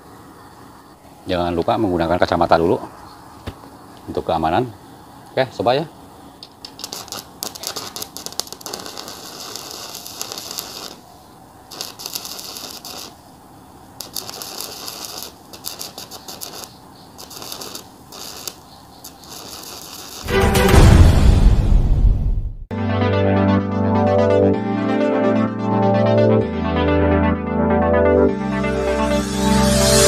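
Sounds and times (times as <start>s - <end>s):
welding arc crackling: 6.4s - 20.3s
loud music: 20.3s - 22.0s, 22.7s - 30.0s.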